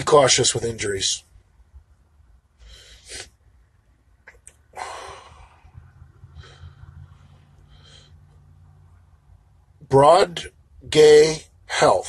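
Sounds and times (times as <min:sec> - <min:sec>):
faint low hum: 0:00.0 - 0:12.0
man breathing through nose: 0:02.6 - 0:03.4, 0:04.8 - 0:08.5.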